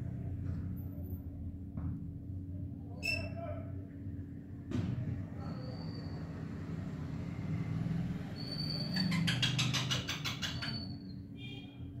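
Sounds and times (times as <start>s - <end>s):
steady low hum: 0.0s - 8.3s
parakeet whistling and chattering: 8.4s - 11.2s.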